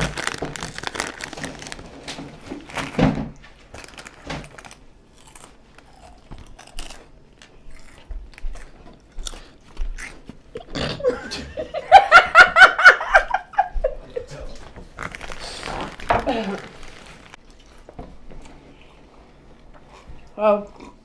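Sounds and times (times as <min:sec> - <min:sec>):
crunchy chips chewed: 0:00.0 - 0:02.0, 0:03.7 - 0:11.0, 0:14.9 - 0:19.0
snack bag crinkling: 0:00.0 - 0:03.0, 0:03.6 - 0:10.4, 0:14.6 - 0:17.9.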